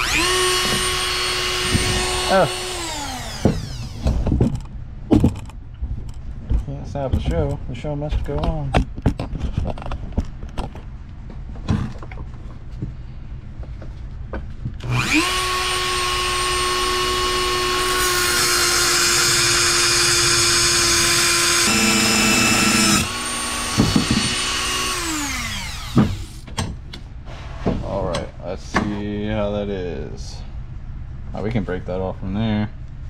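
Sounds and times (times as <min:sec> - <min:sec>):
rotary tool whine: 0:00.0 - 0:04.7, 0:14.8 - 0:26.4.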